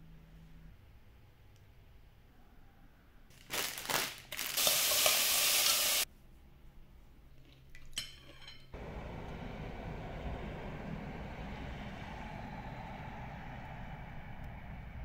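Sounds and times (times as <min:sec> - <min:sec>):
low rumble with hiss: 0:08.8 - 0:15.0.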